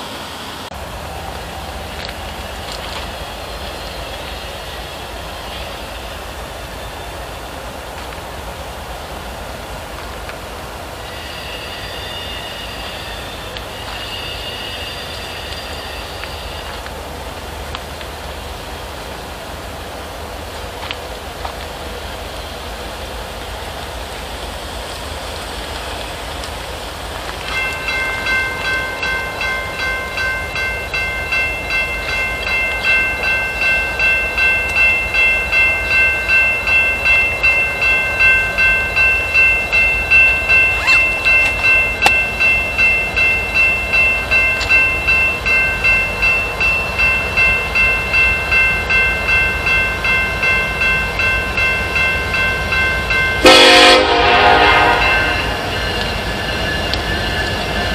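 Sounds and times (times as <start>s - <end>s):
railroad crossing warning bell: 10.8s - 17.0s, 25.2s - 57.9s
train horn: 53.4s - 55.8s.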